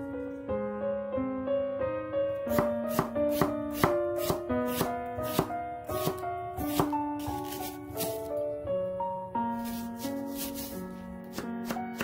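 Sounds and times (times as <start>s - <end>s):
piano-like background music: 0.0s - 12.0s
knife chopping on wooden board: 2.5s - 8.3s, 9.6s - 10.7s, 11.3s - 12.0s.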